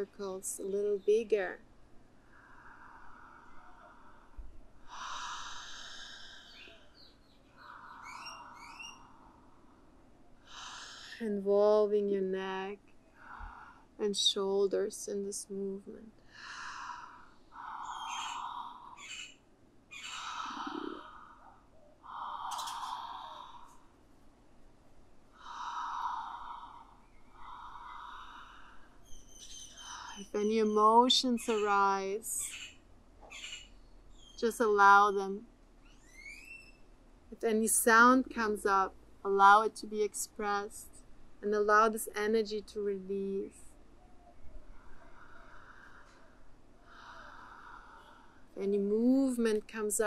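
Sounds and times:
woman breathing deeply: 2.2s - 11.2s, 13.1s - 14.0s, 16.2s - 19.0s, 20.0s - 24.1s, 25.3s - 30.2s, 44.5s - 48.6s.

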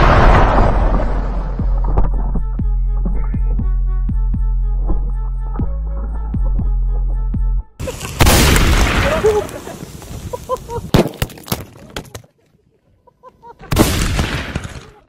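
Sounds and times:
loud explosion blast: 0.0s - 1.9s, 8.2s - 9.7s
background music: 1.2s - 7.8s
sharp cracks: 7.8s - 11.7s, 13.7s - 15.0s
voices calling: 8.8s - 10.9s.

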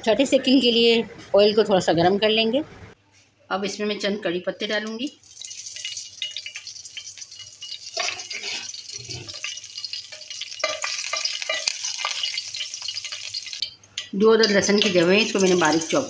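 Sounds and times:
leaves sizzling in hot oil: 4.9s - 16.0s
spoon clinking and stirring in pan: 4.9s - 16.0s.

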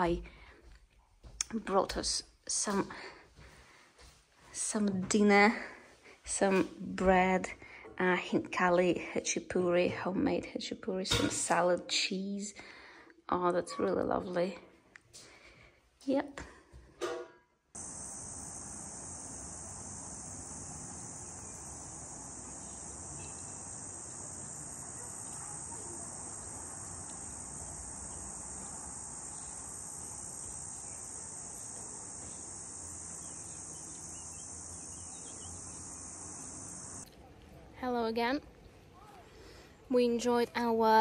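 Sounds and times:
insects chirring: 17.8s - 37.1s.

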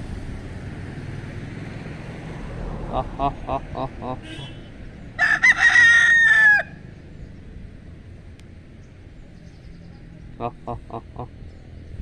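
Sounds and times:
rooster crowing: 5.2s - 6.8s.

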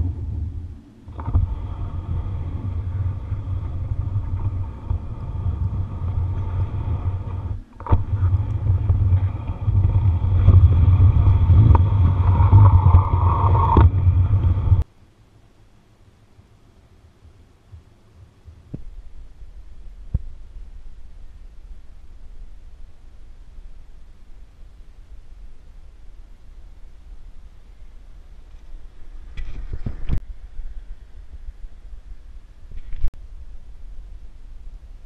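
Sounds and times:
model train rumbling through snow: 0.0s - 14.8s.

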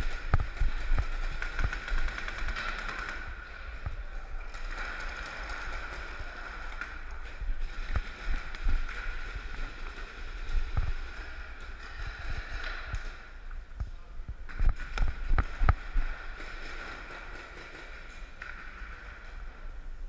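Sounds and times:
sharp cracks: 0.0s - 3.9s.

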